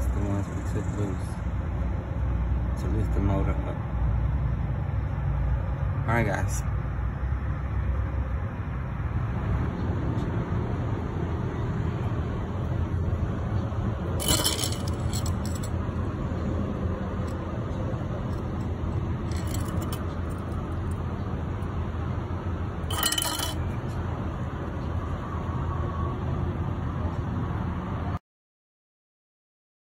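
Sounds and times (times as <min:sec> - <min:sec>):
metallic clinks: 0:14.2 - 0:15.7, 0:18.3 - 0:21.0, 0:22.9 - 0:23.7.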